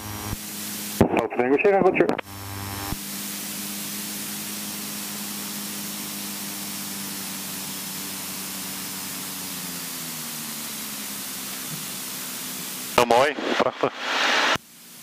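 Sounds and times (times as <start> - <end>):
low engine hum: 2.2 - 13.4
cockpit hiss: 2.9 - 15.0.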